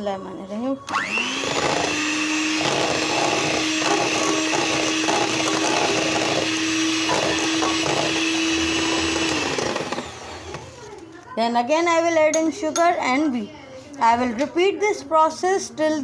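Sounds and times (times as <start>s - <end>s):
electric hand mixer whining: 0.9s - 10.9s.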